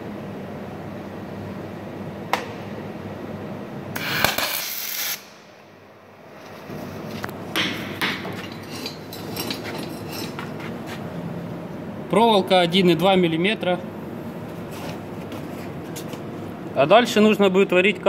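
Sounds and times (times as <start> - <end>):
workshop hum: 0.0 - 18.0
welding arc crackling and hissing: 4.0 - 5.4.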